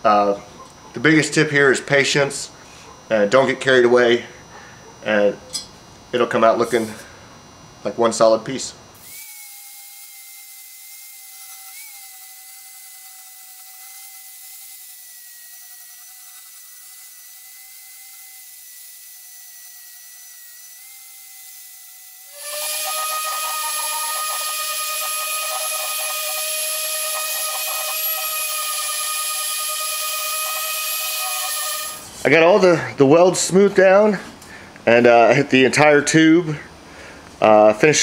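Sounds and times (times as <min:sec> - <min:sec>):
sander on steel: 0:06.5 - 0:07.1, 0:09.0 - 0:32.7
angle grinder whining: 0:09.0 - 0:32.8.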